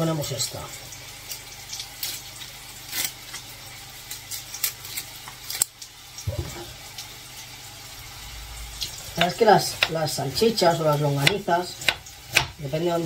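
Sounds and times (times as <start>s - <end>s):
low hum: 7.8s - 9.7s.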